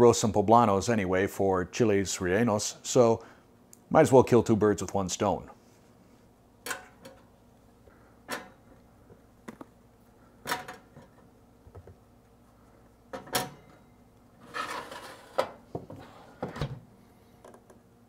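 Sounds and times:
rack scraping rattle: 0:14.4 - 0:16.8.

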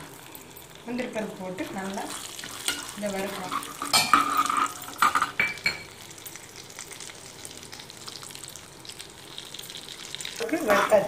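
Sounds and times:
nuts sizzling in a pan: 0:00.0 - 0:11.0
ladle scraping and knocking pan: 0:02.4 - 0:05.4.

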